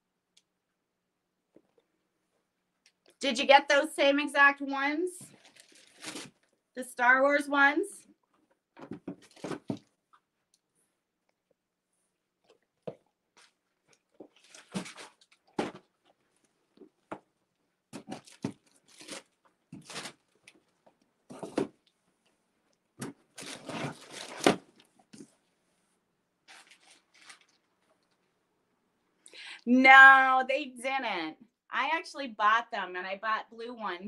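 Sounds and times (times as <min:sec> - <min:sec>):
plastic packaging crinkling: 0:05.3 - 0:06.5, 0:13.4 - 0:15.8, 0:18.0 - 0:21.6, 0:23.3 - 0:25.0, 0:26.4 - 0:28.2.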